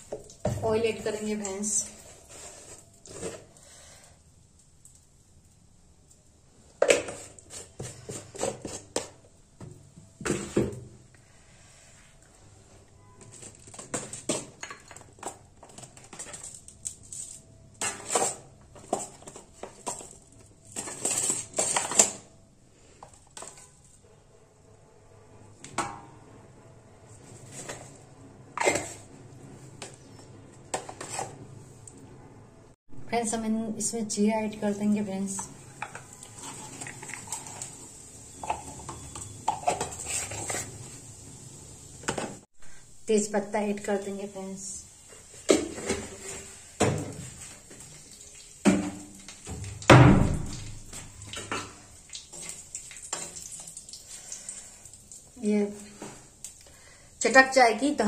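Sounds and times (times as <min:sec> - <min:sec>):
seeds sizzling in hot oil: 0:35.3 - 0:42.5, 0:50.6 - 0:56.7.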